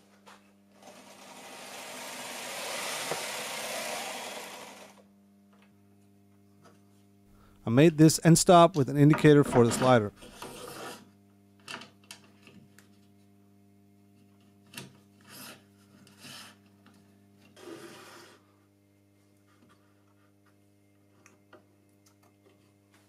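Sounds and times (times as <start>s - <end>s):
faint steady hum: 4.0s - 23.0s
wooden block scraping along metal rail: 9.4s - 11.1s.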